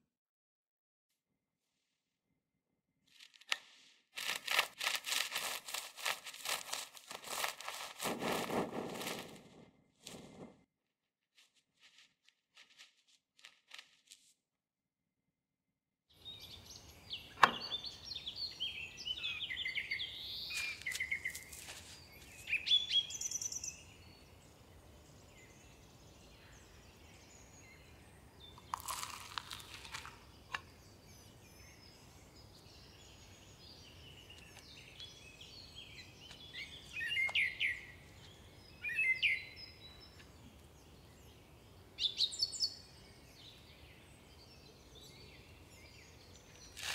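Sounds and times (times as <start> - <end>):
short crackle: 3.1 - 10.7
small birds chirping: 16.1 - 46.9
sharp click: 17.4 - 17.7.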